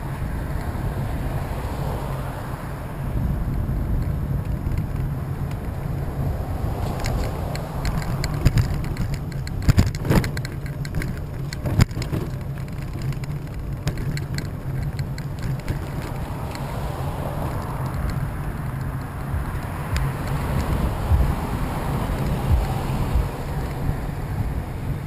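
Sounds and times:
wheels rolling over asphalt: 0.0s - 25.0s
mount knocking and rattling: 4.0s - 16.7s.

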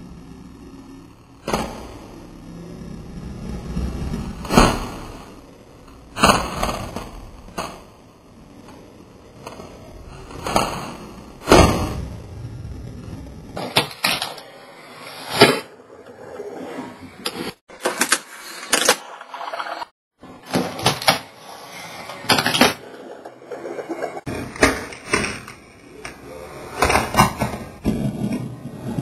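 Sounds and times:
small wheels scraping and rolling: 13.1s - 29.0s.

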